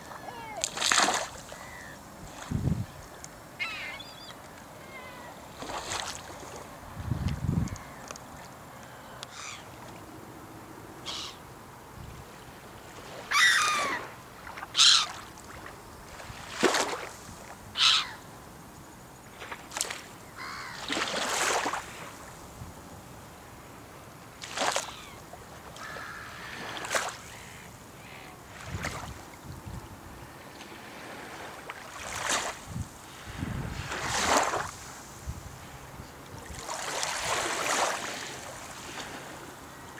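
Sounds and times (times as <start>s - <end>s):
gulls calling: 0.0s - 0.8s, 1.4s - 2.0s, 3.0s - 6.1s, 9.2s - 9.8s, 11.0s - 11.4s, 13.2s - 15.2s, 17.8s - 18.3s
steady background hiss: 0.0s - 39.9s.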